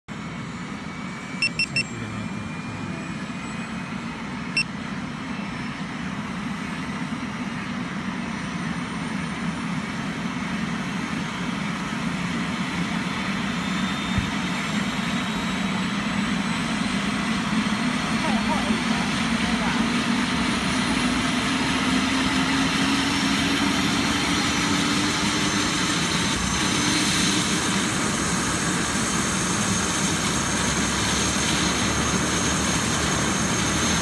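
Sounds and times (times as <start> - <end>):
helicopter engine and rotor: 0.1 - 34.0
short beeps: 1.4 - 2.1, 4.5 - 4.8.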